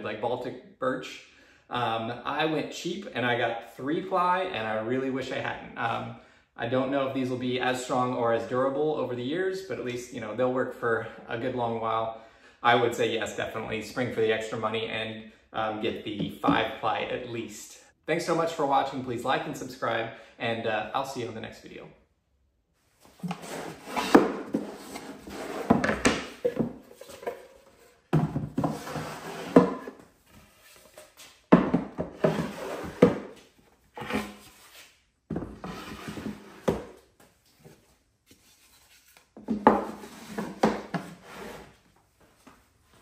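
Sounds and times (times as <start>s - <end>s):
wooden boxes scraping and knocking: 23.2s - 33.4s, 35.3s - 37.0s, 39.4s - 41.8s.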